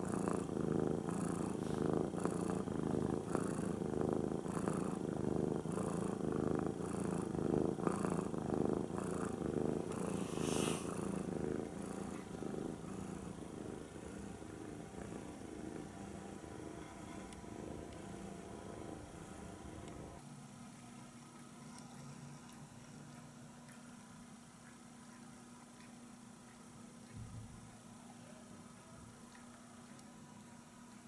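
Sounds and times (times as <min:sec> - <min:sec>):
cat purring: 0:00.0 - 0:20.2
cat hissing softly: 0:09.9 - 0:11.2.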